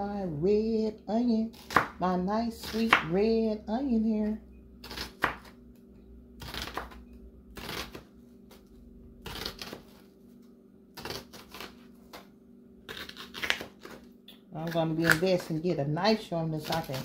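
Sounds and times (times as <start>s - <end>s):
knife slicing onion on board: 1.5s - 3.4s, 4.8s - 5.6s, 6.4s - 10.1s, 11.0s - 12.3s, 12.9s - 15.4s.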